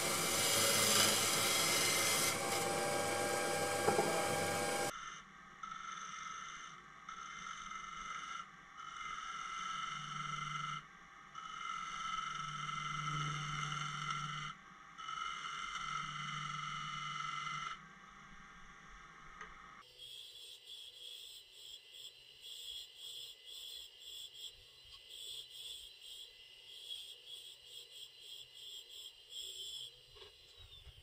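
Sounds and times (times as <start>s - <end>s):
wood lathe tool cutting wood: 0.0s - 4.9s.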